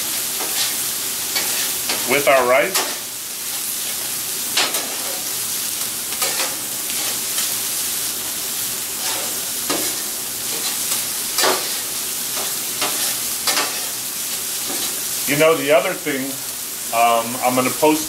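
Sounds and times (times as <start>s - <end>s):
rice sizzling on a griddle: 0.0s - 18.0s
metal spatulas scraping and clacking: 1.4s - 2.2s, 6.2s - 7.2s, 9.0s - 11.8s, 12.4s - 14.0s.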